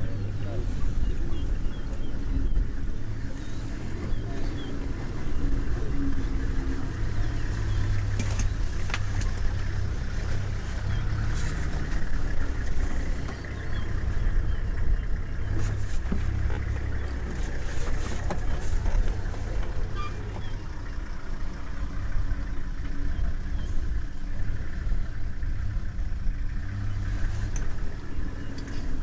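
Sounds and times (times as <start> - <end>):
vehicle engine idling: 0.0 - 29.0.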